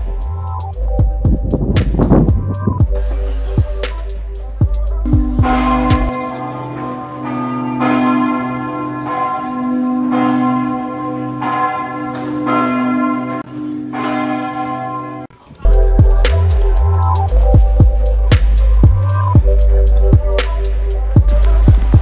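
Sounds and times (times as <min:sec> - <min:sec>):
music with drum beat: 0:00.0 - 0:06.1, 0:15.7 - 0:22.0
church bells ringing: 0:05.0 - 0:15.4.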